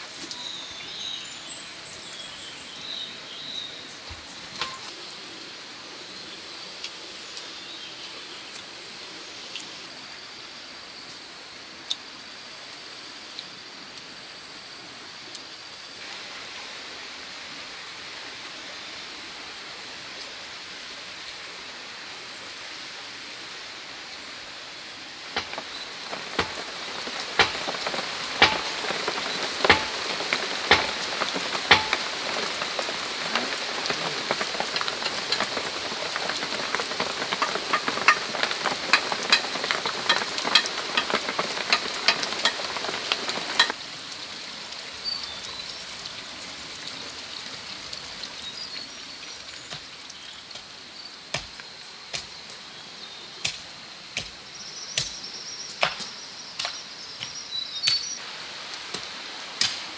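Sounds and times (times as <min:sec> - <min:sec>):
rain pattering on roof and leaves: 0:00.0 - 0:59.9
water drips and knocks: 0:04.0 - 0:05.0, 0:25.3 - 0:43.8, 0:49.6 - 0:52.3.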